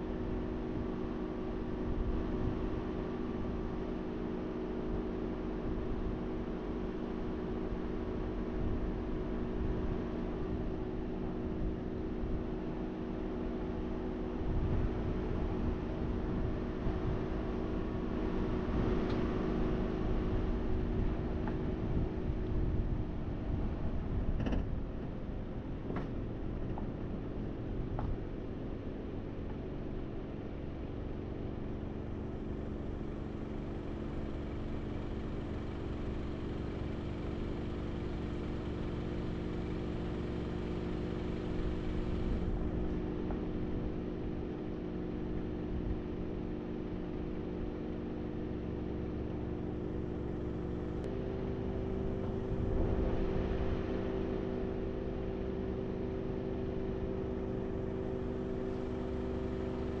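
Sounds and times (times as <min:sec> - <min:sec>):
car engine hum: 0:00.0 - 1:00.0
road noise: 0:11.1 - 1:00.0.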